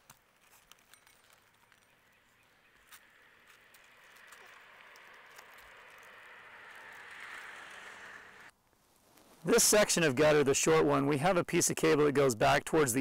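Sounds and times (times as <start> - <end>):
cable clicks and rustles: 0.0 - 2.0, 2.8 - 7.8
soft hiss: 7.4 - 10.1.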